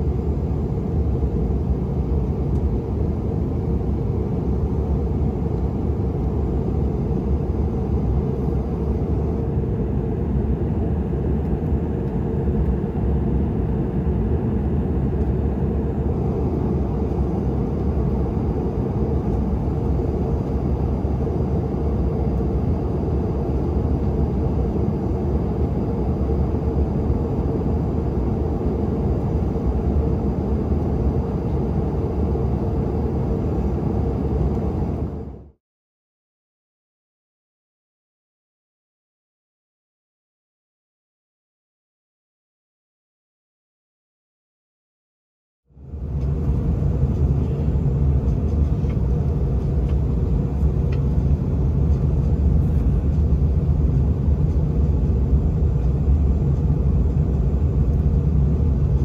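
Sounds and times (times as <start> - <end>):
jet engines droning: 0.0 - 35.6, 45.7 - 59.0.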